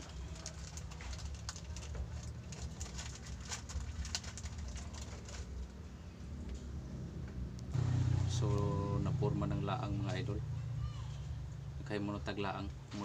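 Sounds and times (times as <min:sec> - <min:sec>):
fishing line clicks and rustles: 0:00.0 - 0:05.8
steady low hum: 0:00.0 - 0:13.0.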